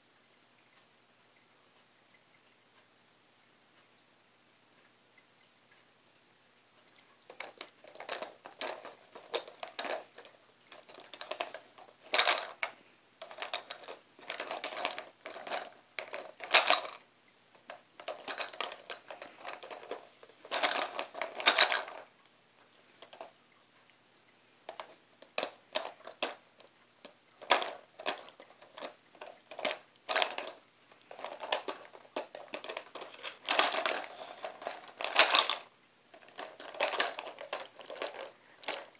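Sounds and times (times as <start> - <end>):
plastic treat puzzle rattling: 7.3 - 22.1, 23.0 - 23.3, 24.7 - 38.9.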